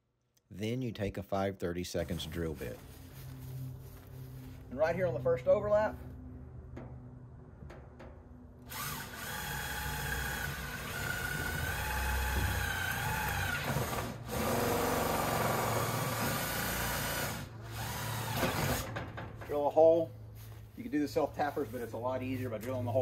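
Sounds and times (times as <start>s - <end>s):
power drill drilling through steel: 8.7s - 18.9s.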